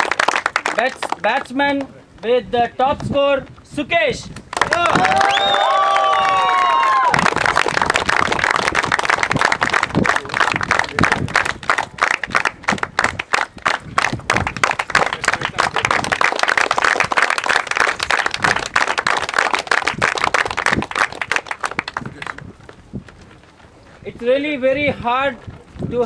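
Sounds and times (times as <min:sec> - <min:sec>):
people clapping: 0:00.0 - 0:01.9, 0:04.4 - 0:22.8.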